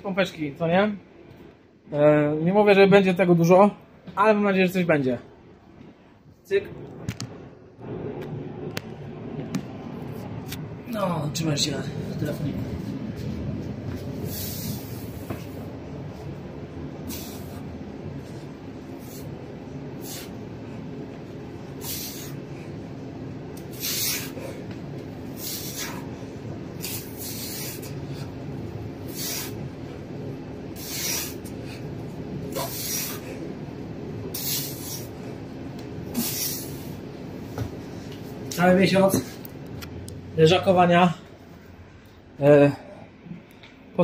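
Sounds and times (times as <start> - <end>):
low hum in bus cabin: 0.0 - 44.0
sharp breaths hissing: 14.2 - 15.6, 17.0 - 17.7, 18.9 - 20.4, 21.8 - 22.8, 23.6 - 28.4, 29.0 - 29.7, 30.7 - 31.9, 32.5 - 33.5, 34.3 - 35.4, 36.0 - 37.1.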